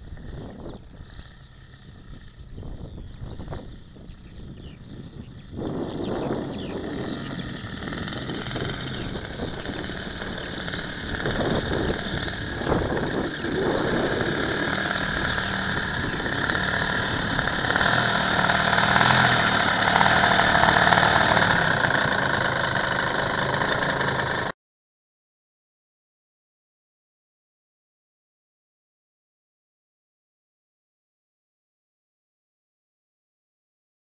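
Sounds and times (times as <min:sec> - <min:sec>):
model aircraft engine running: 0:00.0 - 0:24.6.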